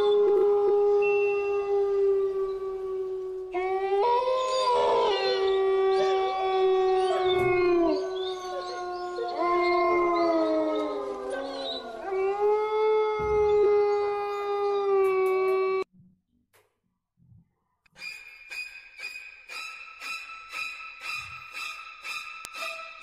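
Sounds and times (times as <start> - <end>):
dog howling: 0.0 - 15.9.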